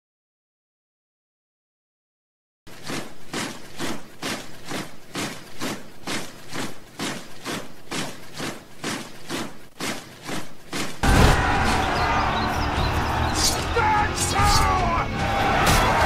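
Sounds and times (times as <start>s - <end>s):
marching feet crunching: 2.7s - 14.0s.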